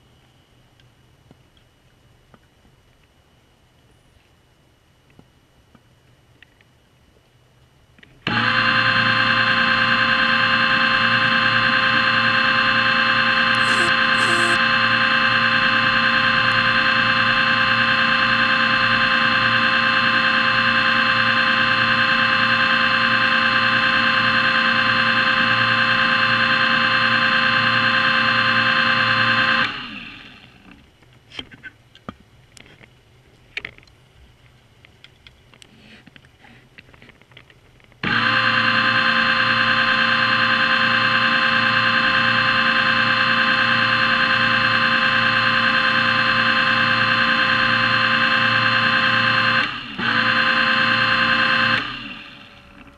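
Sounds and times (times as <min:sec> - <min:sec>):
underwater motor whine: 0:08.3 - 0:30.6, 0:38.0 - 0:52.9.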